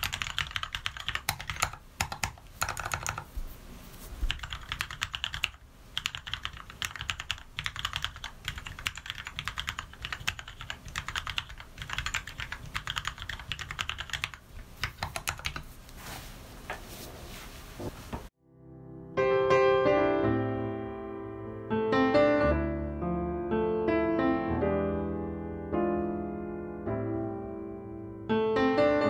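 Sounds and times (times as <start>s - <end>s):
mechanical keyboard typing: 0.0s - 3.3s, 4.3s - 15.6s.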